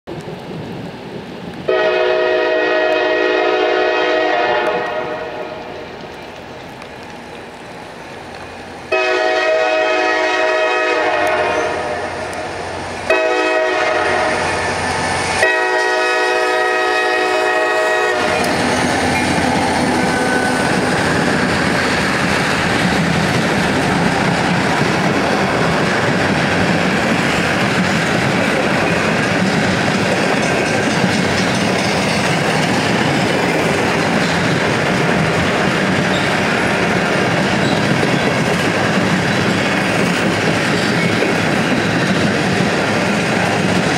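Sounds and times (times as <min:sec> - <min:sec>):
train wheels rushing on rails: 0:00.1 - 0:43.9
locomotive horn: 0:01.7 - 0:05.8, 0:08.9 - 0:12.4, 0:13.1 - 0:14.6, 0:15.4 - 0:19.0.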